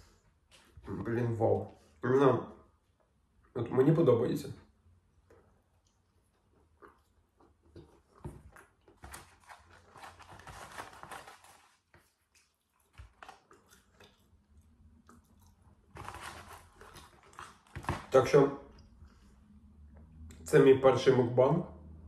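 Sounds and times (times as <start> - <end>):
chewing fries with crunches: 5.3 - 9.0, 11.9 - 17.9
cardboard carton rustling: 8.0 - 12.0, 15.9 - 18.1.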